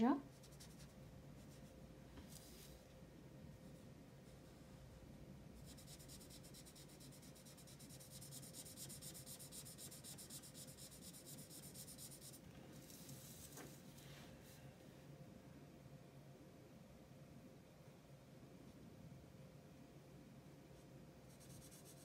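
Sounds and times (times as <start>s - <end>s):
marker scratching on paper: 5.6s - 12.4s, 21.3s - 22.0s.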